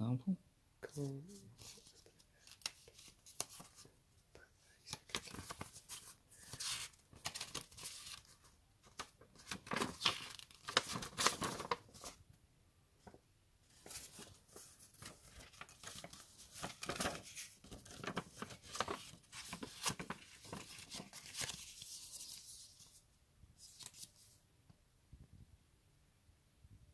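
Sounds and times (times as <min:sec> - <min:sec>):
paper rustling and crinkling: 0:01.6 - 0:03.9, 0:04.7 - 0:12.2, 0:13.0 - 0:23.0, 0:23.6 - 0:24.4.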